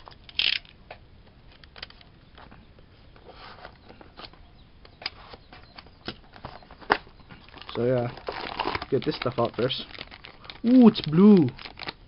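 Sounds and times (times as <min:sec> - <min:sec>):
stiff plastic clicking: 0:06.9 - 0:12.0
knife scraping plastic packaging: 0:07.6 - 0:12.0.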